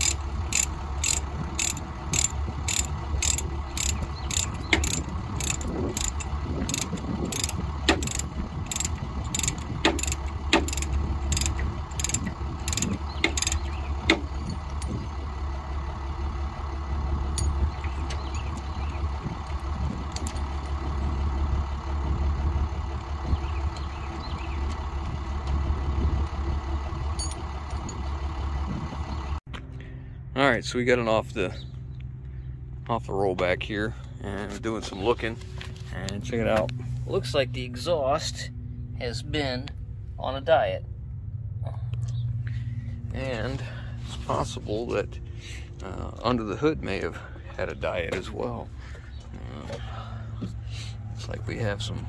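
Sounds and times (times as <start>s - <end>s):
ratchet pawl clicking: 0.0s - 13.7s
low engine drone: 0.0s - 52.0s.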